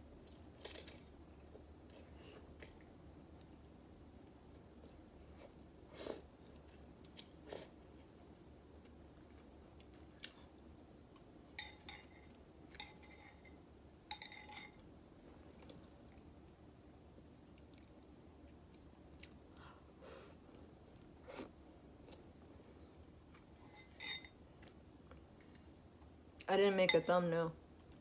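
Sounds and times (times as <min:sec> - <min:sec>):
metal fork clinking on bowl: 0:11.6 - 0:14.8, 0:23.6 - 0:24.4, 0:26.9 - 0:27.2.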